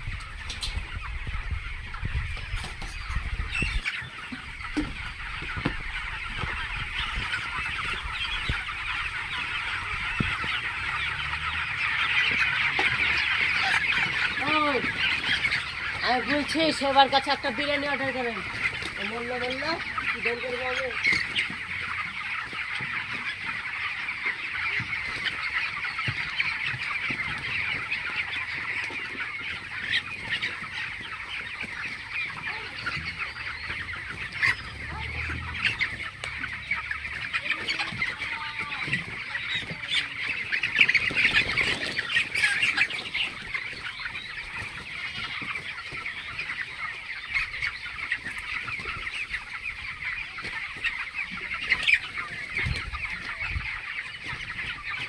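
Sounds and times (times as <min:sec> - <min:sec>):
chicks peeping: 0:00.0 - 0:55.0.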